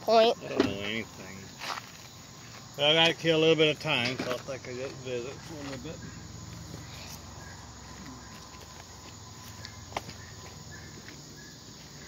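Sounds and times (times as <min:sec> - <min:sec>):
insects chirping: 0:00.0 - 0:12.0
phone scuffing while walking: 0:01.6 - 0:02.7, 0:07.8 - 0:12.0.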